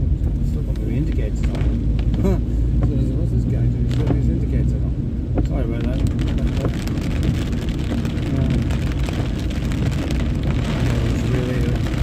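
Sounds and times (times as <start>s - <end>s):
car engine and tyre rumble: 0.0s - 12.0s
rain pattering on car roof: 0.0s - 12.0s
tyres hissing on wet road: 5.4s - 12.0s.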